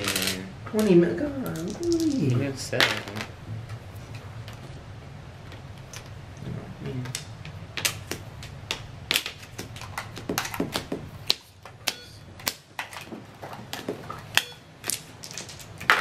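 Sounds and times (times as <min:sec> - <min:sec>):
game pieces and dice clicking: 0:01.4 - 0:02.2.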